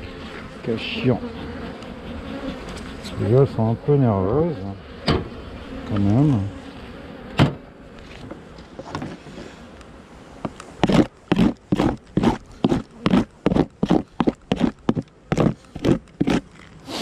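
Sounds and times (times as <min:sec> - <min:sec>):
metal tool scraping wood: 0:10.8 - 0:17.0.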